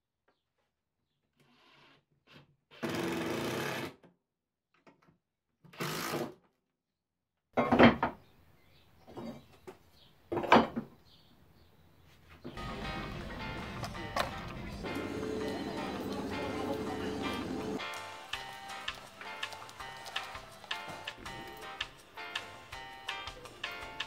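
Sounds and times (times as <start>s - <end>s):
clunks of wood and tools: 9.1s - 11.0s.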